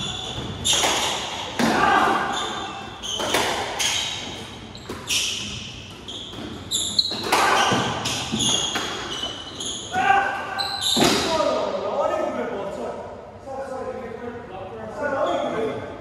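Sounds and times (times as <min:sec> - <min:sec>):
shoes squeaking on wooden floor: 0:00.0 - 0:11.2.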